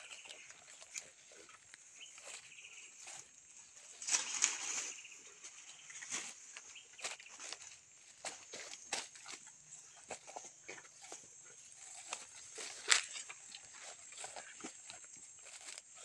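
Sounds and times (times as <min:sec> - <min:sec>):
footsteps through tall grass: 0:00.0 - 0:16.0
dry leaves rustling and crackling: 0:03.0 - 0:05.2, 0:11.8 - 0:16.0.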